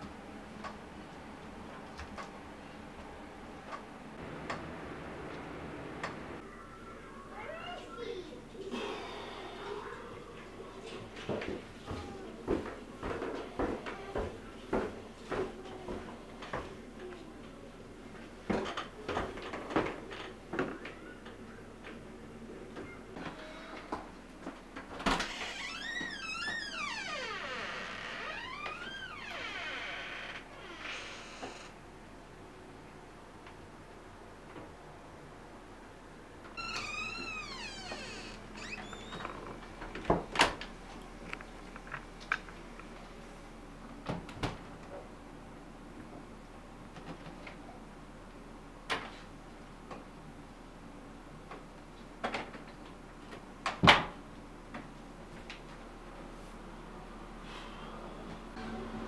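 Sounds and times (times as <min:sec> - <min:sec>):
footsteps on carpeted stairs: 0:11.2 - 0:16.8.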